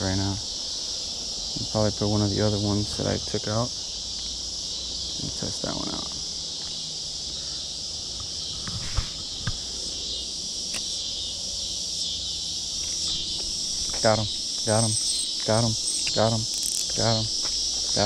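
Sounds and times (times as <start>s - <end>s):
insects chorus: 0.0s - 18.0s.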